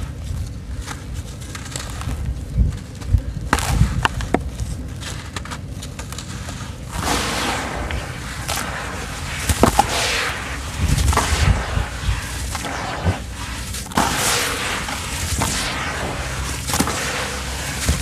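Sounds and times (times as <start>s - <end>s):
hiss of falling crumbs: 6.4s - 18.0s
sharp cracks: 6.9s - 18.0s.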